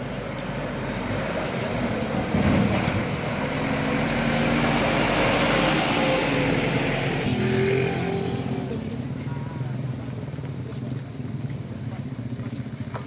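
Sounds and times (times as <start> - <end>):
diesel truck engine passing: 0.0 - 10.4.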